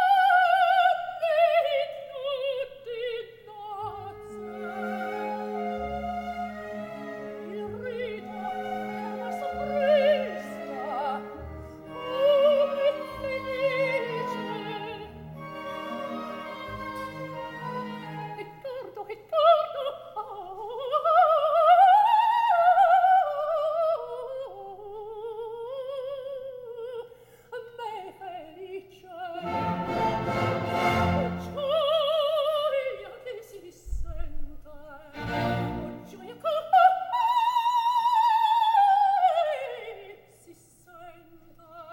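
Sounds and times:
soprano singing opera: 0.0s - 41.9s
orchestra playing: 4.0s - 18.6s, 29.4s - 32.0s, 35.2s - 36.4s.

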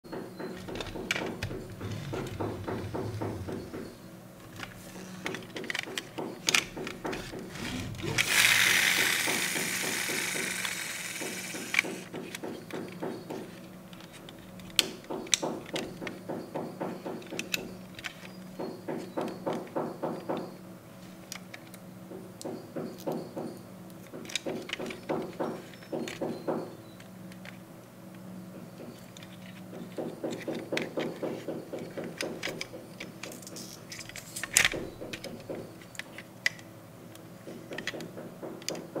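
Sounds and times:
steady background tones: 0.1s - 12.1s
toy car doors clicking: 5.5s - 12.1s.

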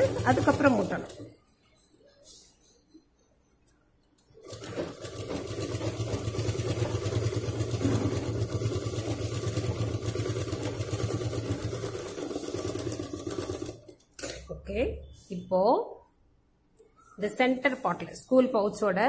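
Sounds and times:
sewing machine running: 0.0s - 1.3s, 4.4s - 13.9s.

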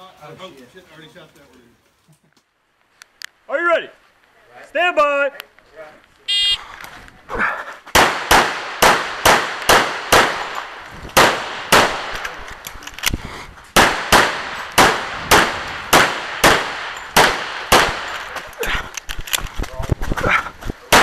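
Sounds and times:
pistol shots with echo: 8.0s - 12.4s, 13.8s - 18.3s.

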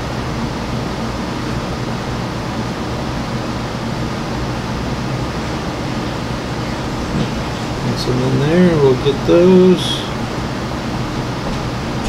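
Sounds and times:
steady hiss: 5.5s - 10.4s.

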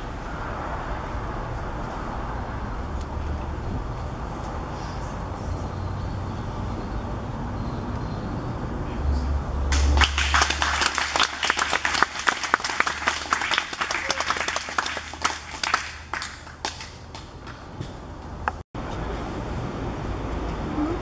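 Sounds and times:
people applauding: 9.7s - 17.3s.

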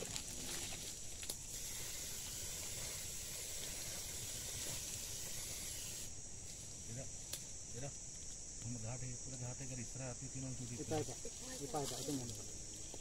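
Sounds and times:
aerosol spray hissing: 1.4s - 6.1s.

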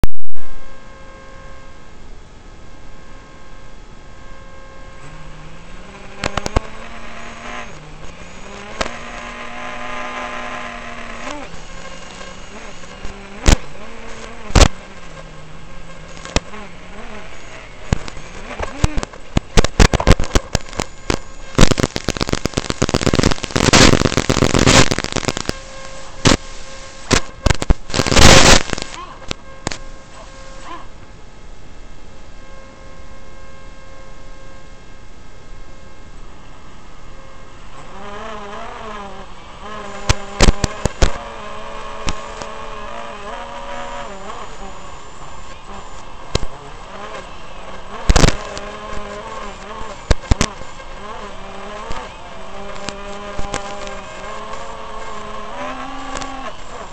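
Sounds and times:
crackling radio static: 0.0s - 56.9s
quadcopter motors buzzing: 2.8s - 31.0s, 35.8s - 56.9s
bursts of hiss: 5.0s - 30.9s, 37.8s - 56.9s.

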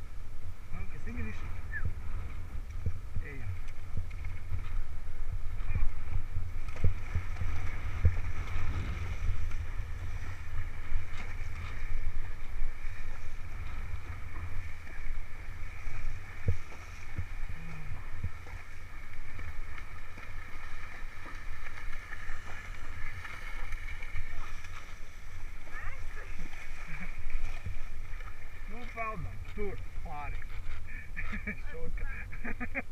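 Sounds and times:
horses splashing through water: 0.0s - 32.9s
wind rumble on microphone: 0.0s - 32.9s.

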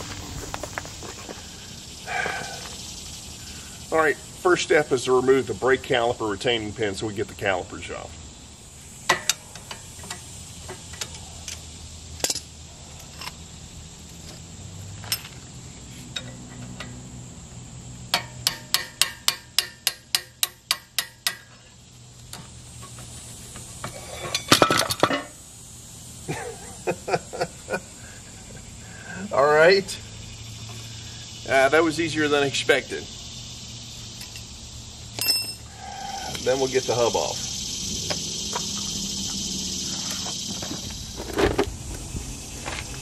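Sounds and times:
small hammer tapping metal: 18.1s - 21.6s.

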